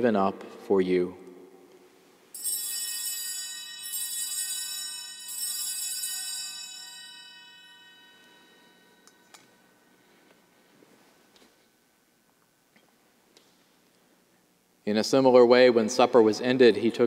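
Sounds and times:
altar bells ringing: 0:02.3 - 0:10.5.

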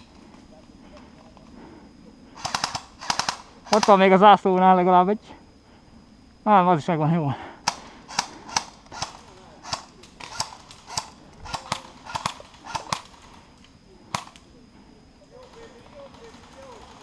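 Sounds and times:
airsoft gun shots: 0:02.4 - 0:04.0, 0:07.7 - 0:13.1.

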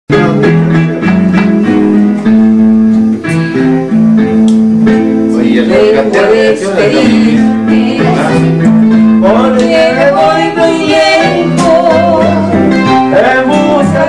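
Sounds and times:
acoustic guitar strumming: 0:00.1 - 0:14.0
electronic keyboard chords: 0:00.1 - 0:14.0
person singing: 0:05.3 - 0:14.0.

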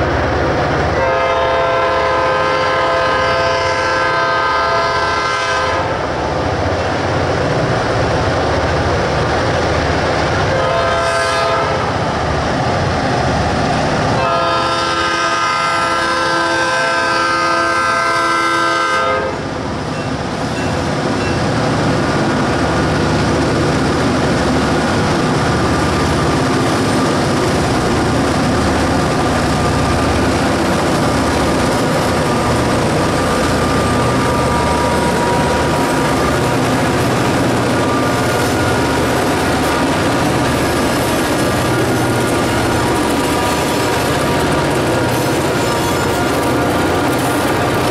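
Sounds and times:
diesel locomotive rumble: 0:00.0 - 0:47.9
locomotive horn blasts: 0:01.0 - 0:06.0, 0:10.5 - 0:12.0, 0:14.2 - 0:19.5, 0:43.5 - 0:46.4.

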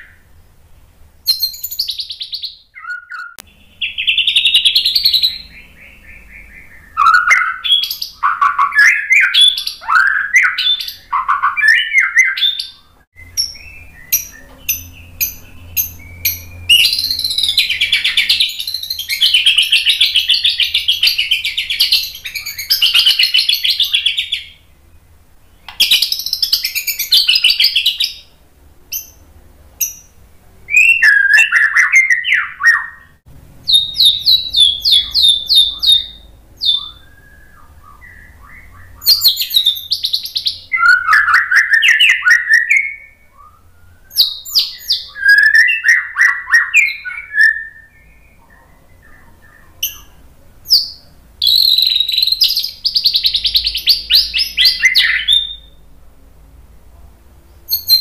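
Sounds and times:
bird singing: 0:00.0 - 0:55.9, 0:57.5 - 0:58.0
bird call notes: 0:01.3 - 0:24.7, 0:29.8 - 0:50.2.

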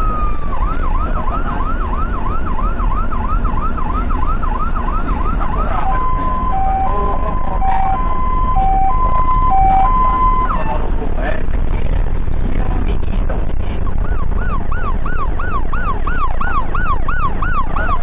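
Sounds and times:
ambulance siren: 0:00.0 - 0:10.9, 0:14.0 - 0:18.0
road noise: 0:00.0 - 0:18.0.

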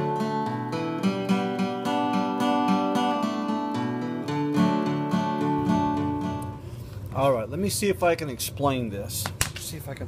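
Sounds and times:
acoustic guitar music: 0:00.0 - 0:07.0.

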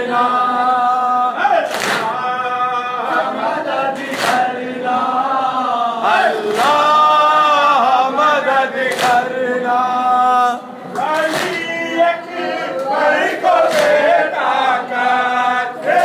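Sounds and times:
men chanting in unison: 0:00.0 - 0:16.0
hands slapping chests: 0:01.7 - 0:02.2, 0:04.0 - 0:04.5, 0:08.9 - 0:09.3, 0:10.9 - 0:11.7, 0:13.7 - 0:14.0.

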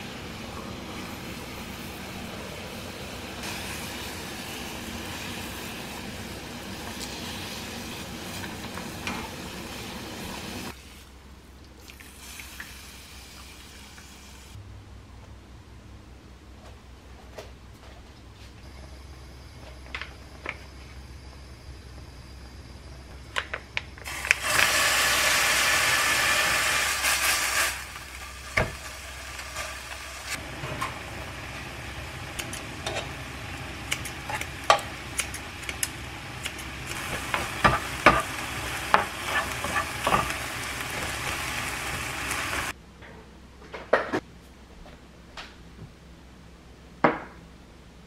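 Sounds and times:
meat sizzling in a pan: 0:24.1 - 0:30.4, 0:31.0 - 0:42.7
kitchen scissors snipping: 0:33.9 - 0:37.0.

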